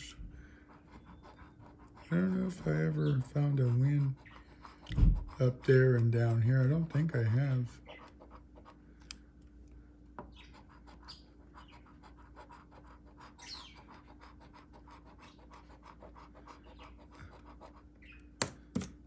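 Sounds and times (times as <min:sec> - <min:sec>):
coin scratching lottery ticket: 0:00.8 - 0:08.4.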